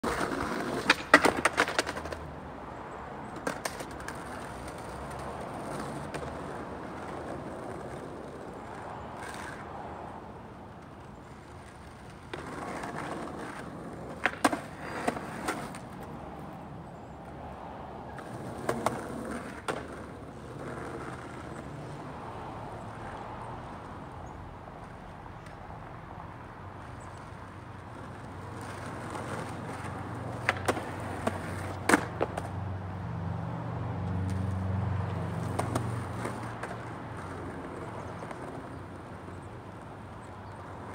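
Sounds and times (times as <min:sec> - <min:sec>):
skateboard clacking on ground: 0:00.0 - 0:02.4, 0:03.2 - 0:17.0, 0:18.1 - 0:22.0, 0:24.8 - 0:25.7, 0:26.8 - 0:32.6, 0:35.1 - 0:40.9
skateboard wheels rolling on asphalt: 0:00.0 - 0:40.9.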